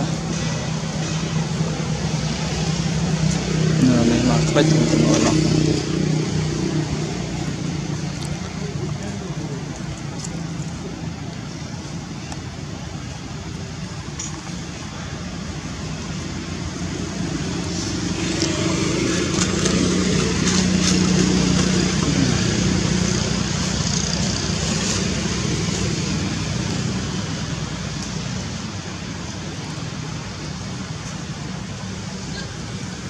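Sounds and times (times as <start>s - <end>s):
motor vehicle passing by: 0.0s - 11.4s, 15.4s - 28.8s.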